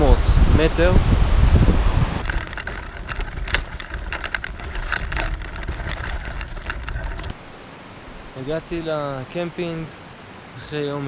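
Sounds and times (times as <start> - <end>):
bicycle rattling and clicking: 2.2 - 7.4.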